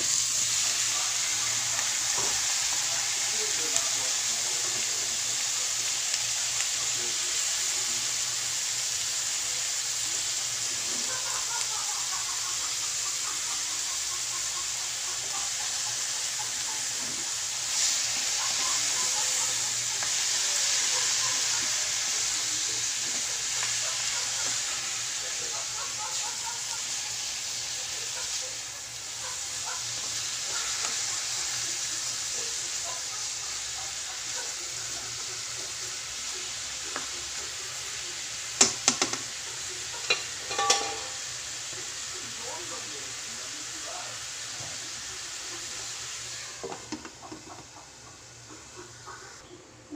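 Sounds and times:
chicken sizzling in a wok: 0:00.0 - 0:49.6
spatula stirring meat: 0:14.6 - 0:28.4, 0:29.0 - 0:38.2.

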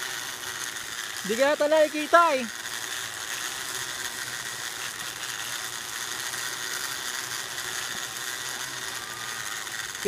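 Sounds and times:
bicycle wheels whirring on cable: 0:00.0 - 0:10.0.

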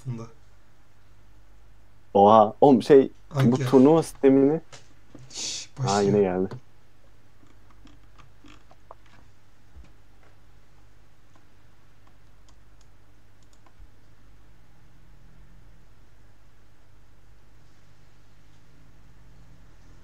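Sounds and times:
computer clicks: 0:11.3 - 0:13.8.

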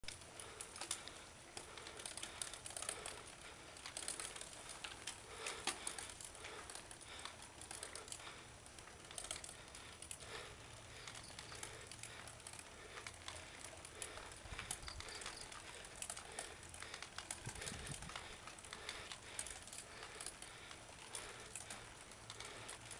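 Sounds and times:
bike parts clicking and rattling: 0:00.0 - 0:22.9.

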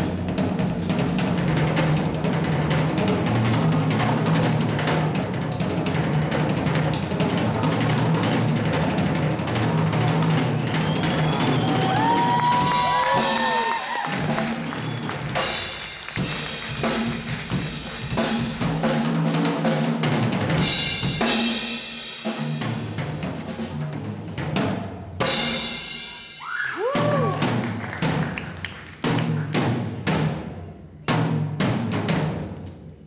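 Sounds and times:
drum rolls on toms and bass drum: 0:00.0 - 0:21.4.

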